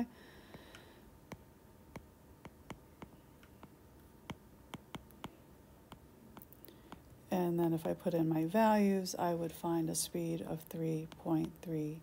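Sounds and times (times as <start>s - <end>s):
stylus tapping on glass screen: 0.5s - 7.1s.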